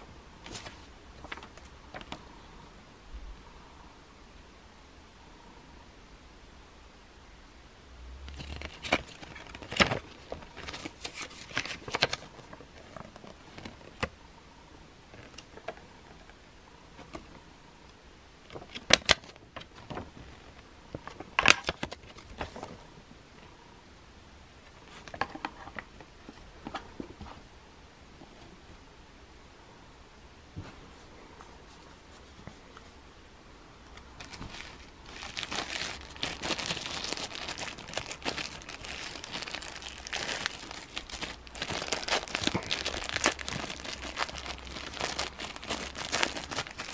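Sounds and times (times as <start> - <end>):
paper rustling and crinkling: 0.4 - 2.3, 8.3 - 14.1, 34.0 - 46.9.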